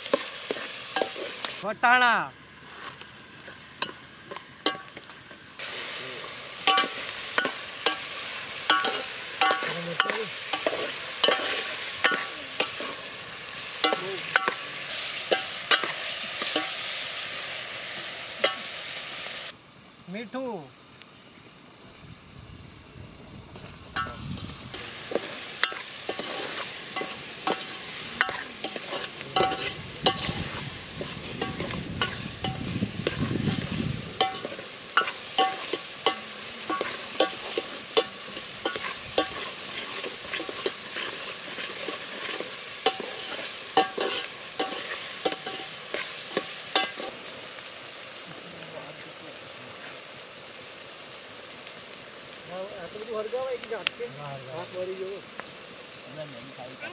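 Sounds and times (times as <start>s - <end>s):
vegetables sizzling in hot oil: 0.0s - 56.9s.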